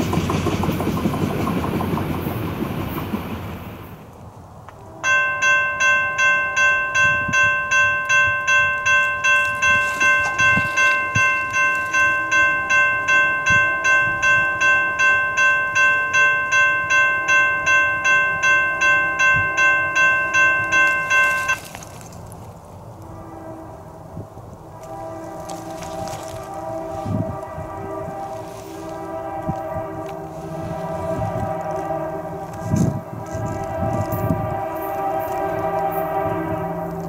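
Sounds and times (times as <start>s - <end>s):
railroad crossing bell ringing: 4.8s - 22.1s, 27.1s - 37.0s.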